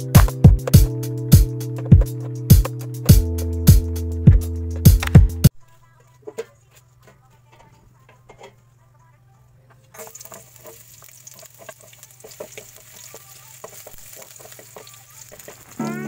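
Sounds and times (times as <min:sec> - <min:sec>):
onion and garlic sizzling in oil: 0:09.9 - 0:16.0
wooden spatula scraping pan: 0:10.0 - 0:15.8.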